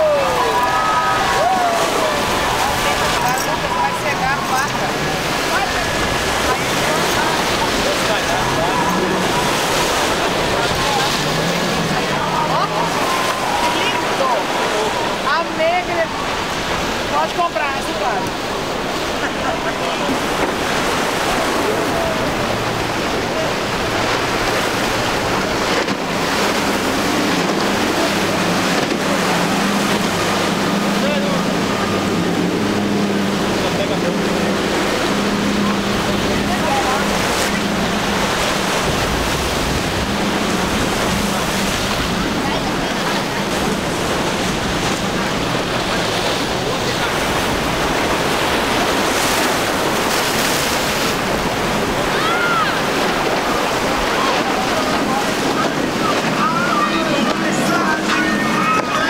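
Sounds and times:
boat spray and waves: 0.0s - 59.0s
outboard engine drone: 0.0s - 59.0s
wind buffeting microphone: 18.2s - 59.0s.

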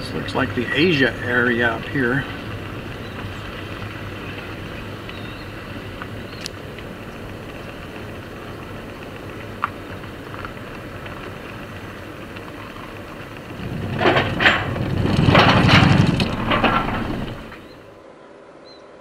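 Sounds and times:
rumbling crackling with clicks: 0.0s - 17.9s
car engine and road hum: 0.0s - 18.0s.

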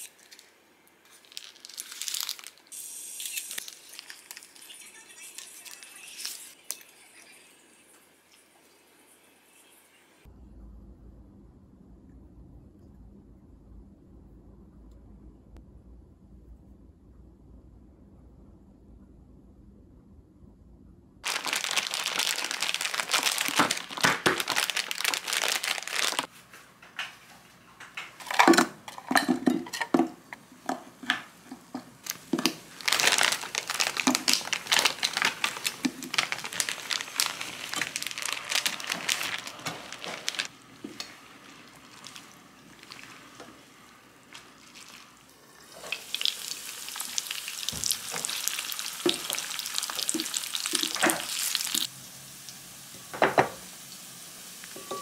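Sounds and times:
food sizzling in oil: 2.7s - 4.6s, 44.8s - 55.0s.

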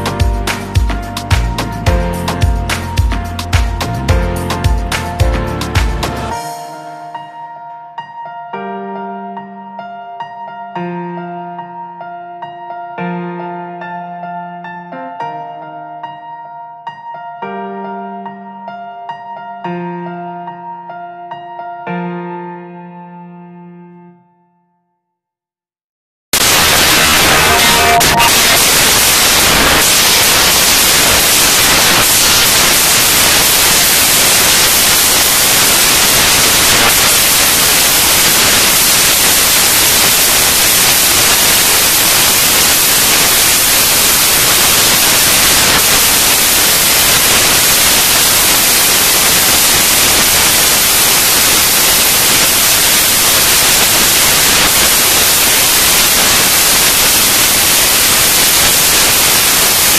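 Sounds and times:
loud static hiss: 0.0s - 6.4s, 26.4s - 59.9s.

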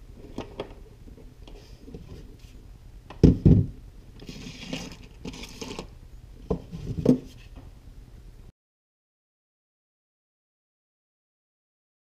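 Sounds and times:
knocks on wooden workbench: 3.2s - 3.8s
rustling scrape: 4.2s - 5.9s, 6.6s - 7.6s.

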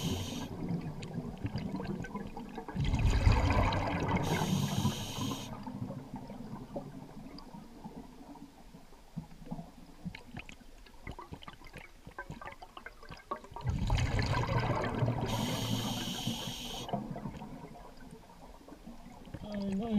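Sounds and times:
regulator inhalation hiss: 0.0s - 0.5s, 4.2s - 5.6s, 15.3s - 16.9s
rumble of exhaled bubbles: 0.0s - 19.9s.

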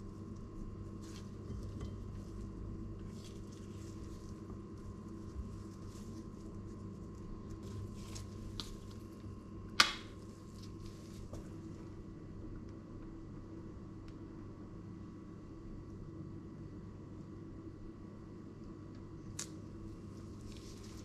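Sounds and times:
steady low hum: 0.0s - 21.0s
gloved hands handling dishes: 0.9s - 9.0s.

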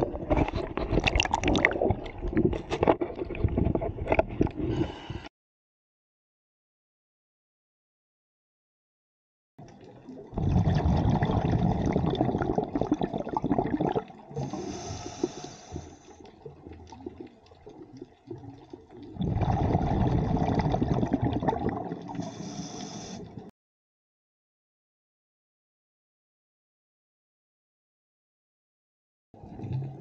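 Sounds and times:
exhaled bubbles underwater: 0.0s - 5.0s, 9.6s - 23.5s, 29.4s - 30.0s
regulator inhalation hiss: 14.4s - 16.1s, 22.2s - 23.4s.

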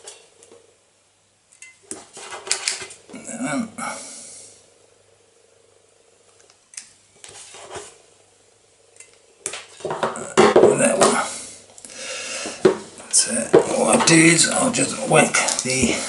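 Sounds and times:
wire strippers clicking and scraping: 1.5s - 3.2s, 15.2s - 15.8s
wires handled by hand: 1.5s - 3.2s, 12.5s - 16.0s.

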